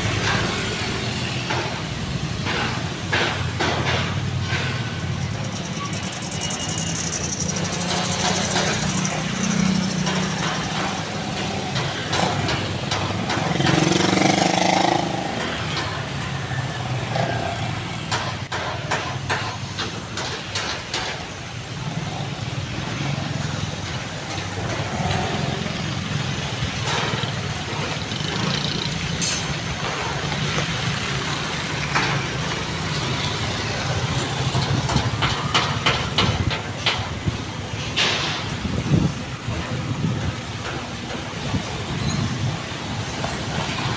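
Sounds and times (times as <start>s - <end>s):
passing vehicle engines: 0.0s - 18.5s, 21.2s - 43.9s
sharp knocks: 1.4s - 4.8s, 18.1s - 21.4s, 34.5s - 38.5s
motorcycle: 5.6s - 18.3s, 21.9s - 35.7s.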